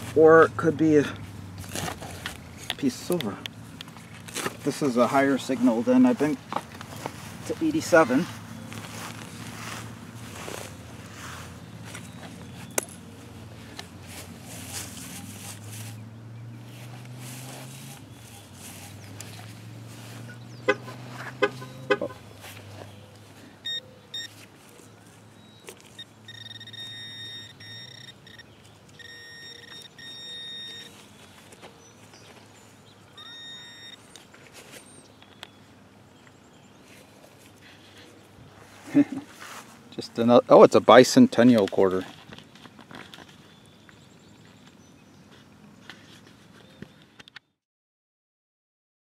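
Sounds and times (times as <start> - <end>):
shovel digging in turf: 14.1 - 16.0
car beeping: 17.8 - 22.3, 22.9 - 32.0, 33.0 - 34.2.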